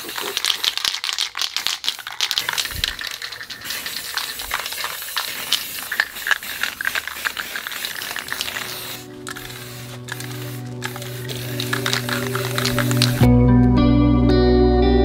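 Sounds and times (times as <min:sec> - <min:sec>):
clicking rattle: 0:00.0 - 0:13.3
spray paint cans hissing: 0:00.0 - 0:13.3
music: 0:09.0 - 0:15.0.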